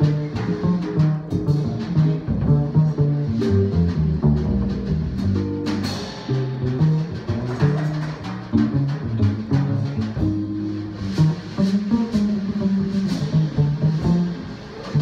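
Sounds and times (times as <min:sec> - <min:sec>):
drums with cymbal strokes: 0:00.0 - 0:15.0
jazz guitar playing: 0:00.0 - 0:15.0
upright bass line: 0:00.0 - 0:15.0.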